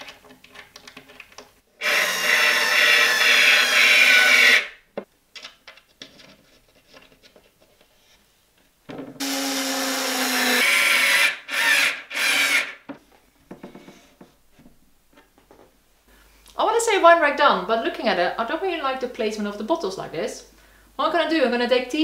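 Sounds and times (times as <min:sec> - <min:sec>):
cordless screwdriver motor whine: 0:01.8 - 0:04.7, 0:09.2 - 0:12.8.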